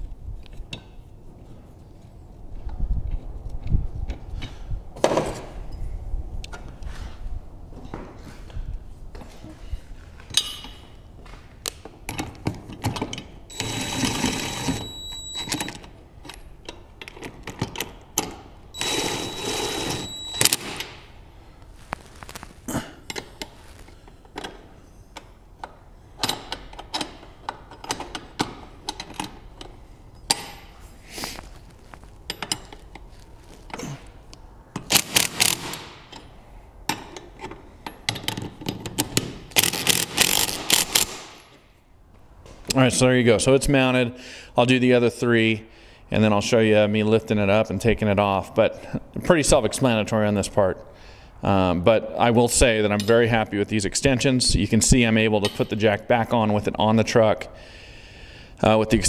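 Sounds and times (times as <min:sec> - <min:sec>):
impact driver whining: 0:13.5 - 0:15.7, 0:18.8 - 0:20.9, 0:39.5 - 0:41.3.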